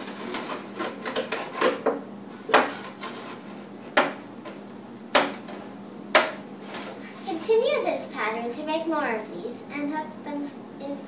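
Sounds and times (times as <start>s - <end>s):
plastic jugs knocking on countertop: 3.9s - 4.2s.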